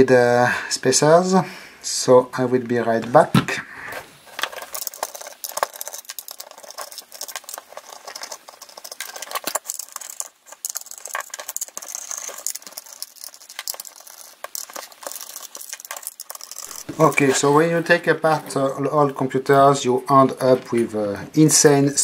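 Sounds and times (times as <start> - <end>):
small metal clicks and rattles: 4.2 - 17.5.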